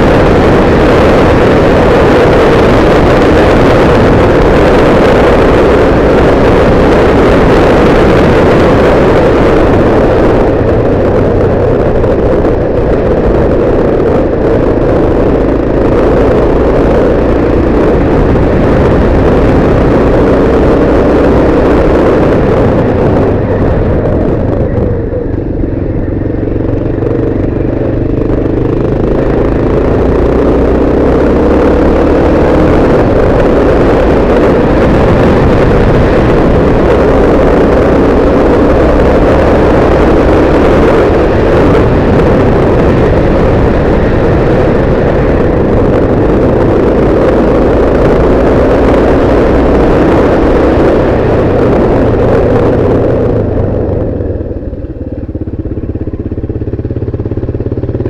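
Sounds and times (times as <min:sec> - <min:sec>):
motorcycle engine running: 0:00.0 - 0:58.0
steady rush of noise: 0:00.0 - 0:58.0.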